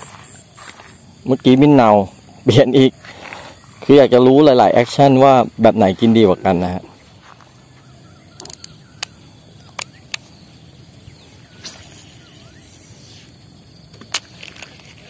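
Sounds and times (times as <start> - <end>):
faint outdoor hush: 0.0 - 13.9
fishing reel clicks: 8.4 - 9.1.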